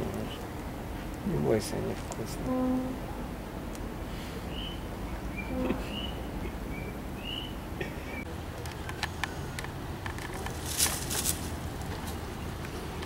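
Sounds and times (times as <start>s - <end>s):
low background rumble: 0.0s - 13.0s
rustle: 0.0s - 13.0s
bird chirping: 4.4s - 9.6s.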